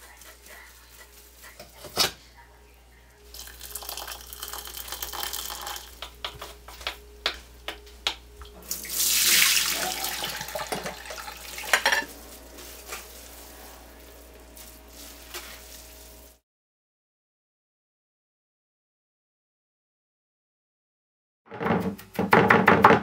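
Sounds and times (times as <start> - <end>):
water pouring into metal strainer: 3.3 - 5.9, 8.8 - 11.8.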